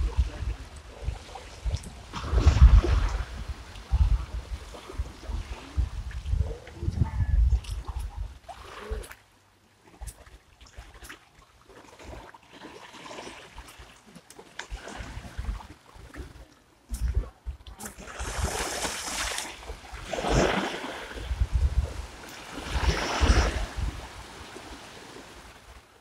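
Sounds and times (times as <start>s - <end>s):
wind buffeting microphone: 0.0s - 9.1s, 14.7s - 24.6s
small waves washing onto sand: 0.0s - 26.0s.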